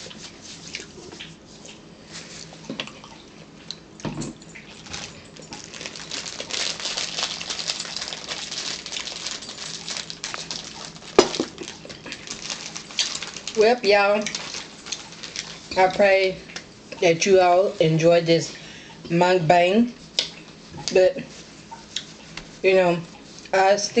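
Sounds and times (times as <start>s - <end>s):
crinkly rustling and crackling: 4.6s - 16.4s.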